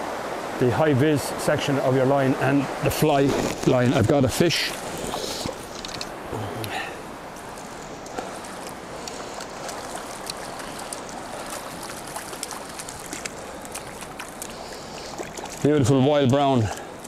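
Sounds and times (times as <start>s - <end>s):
river rushing over riffle: 0.0s - 17.0s
small ticks and splashes: 4.6s - 17.0s.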